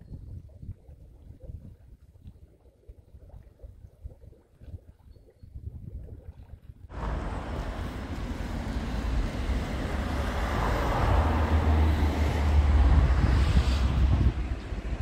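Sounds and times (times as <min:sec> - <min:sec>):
wind buffeting microphone: 0:00.0 - 0:15.0
road traffic hiss: 0:06.9 - 0:15.0.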